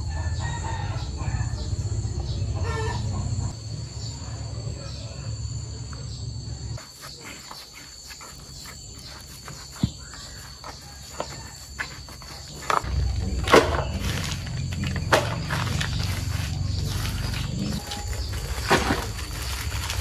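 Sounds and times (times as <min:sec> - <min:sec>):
insects chirring: 0:00.0 - 0:20.0
rustles and clicks: 0:06.8 - 0:20.0
low rumble: 0:12.8 - 0:20.0.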